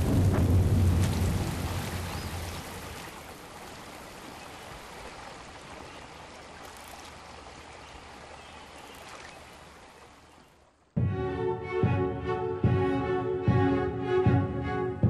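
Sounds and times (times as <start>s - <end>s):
heavy rain hiss: 0.0s - 10.3s.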